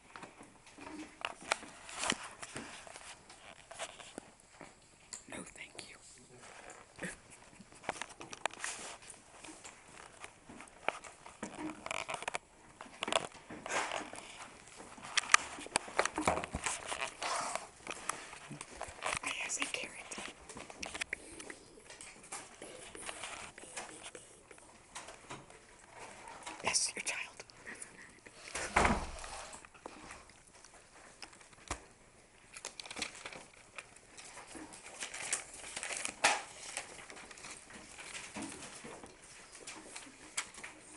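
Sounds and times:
small clicks and crinkles: 0:00.0 - 0:40.9
papers rustling: 0:00.1 - 0:05.1, 0:06.4 - 0:27.3, 0:28.3 - 0:40.9
thump: 0:28.7 - 0:29.3.

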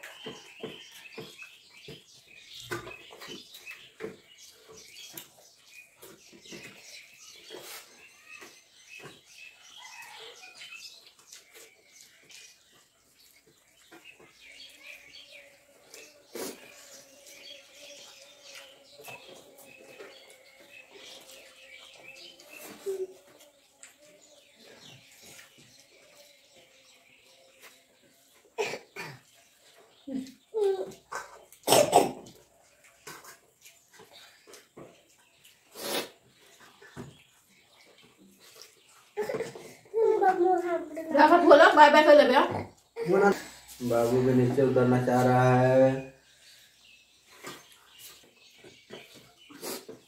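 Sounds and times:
people chewing and lip-smacking: 0:00.0 - 0:28.6, 0:29.2 - 0:39.9.

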